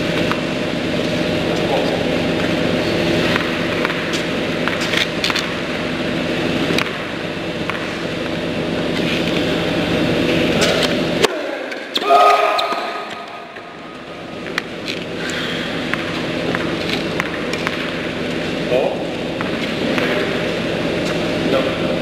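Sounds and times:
loud steady hum: 0.0s - 22.0s
tennis rackets hitting ball: 0.2s - 0.5s, 3.2s - 5.6s, 6.6s - 8.4s, 15.8s - 18.3s.

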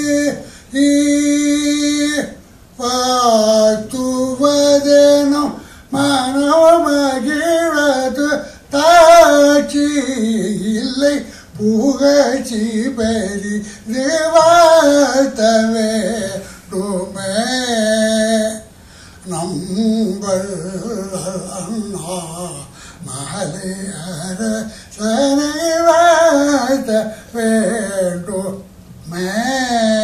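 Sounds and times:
man singing unaccompanied: 0.0s - 30.0s
singer breathing: 0.4s - 0.8s, 5.6s - 6.0s, 8.4s - 8.7s, 11.2s - 11.6s, 13.6s - 13.9s, 16.4s - 16.7s, 18.8s - 19.3s, 22.6s - 23.1s, 24.6s - 25.0s, 27.1s - 27.4s.

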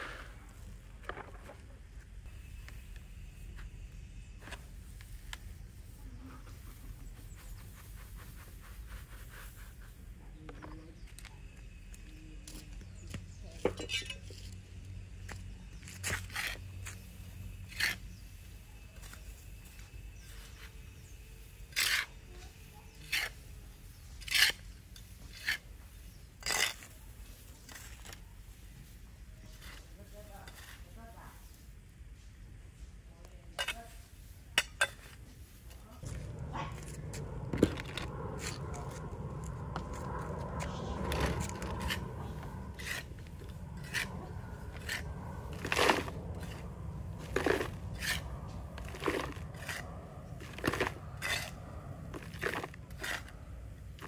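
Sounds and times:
sharp scrapes: 15.8s - 18.6s, 40.6s - 54.0s.

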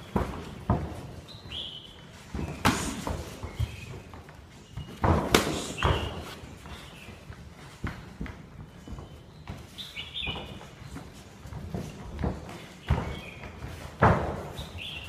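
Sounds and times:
punches and kicks smacking: 2.4s - 3.8s, 5.0s - 6.2s.

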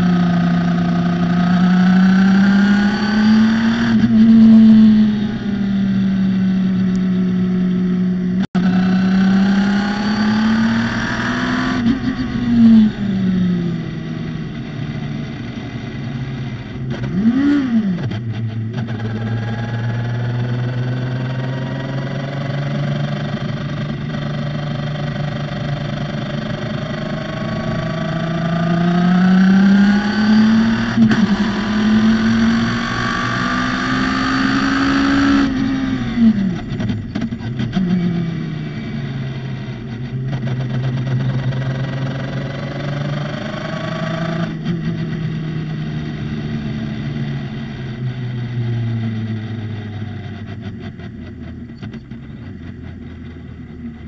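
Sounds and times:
race car engine accelerating: 6.1s - 48.0s.

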